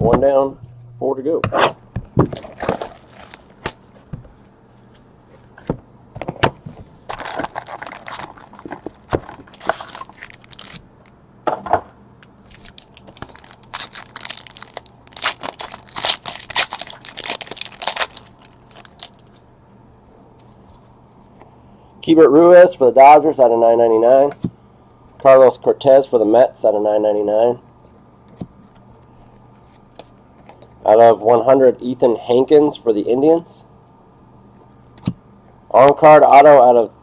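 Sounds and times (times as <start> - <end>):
foil packs crinkling and tearing: 2.4 - 4.0, 7.1 - 11.1, 12.5 - 19.4.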